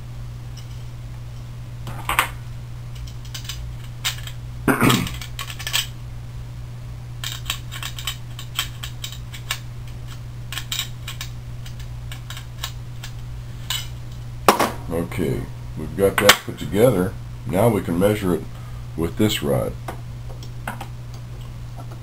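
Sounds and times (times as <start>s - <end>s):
steady low hum: 0.0s - 22.0s
metal nuts and washers clinking: 5.1s - 5.9s.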